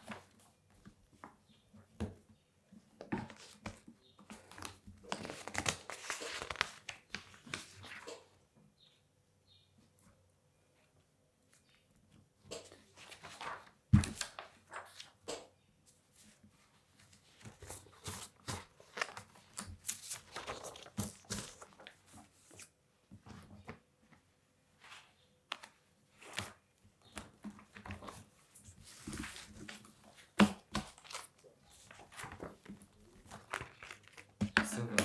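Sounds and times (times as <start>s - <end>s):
paper rustling: 3.2s - 8.3s, 12.6s - 15.2s, 15.9s - 24.2s, 24.8s - 35.0s.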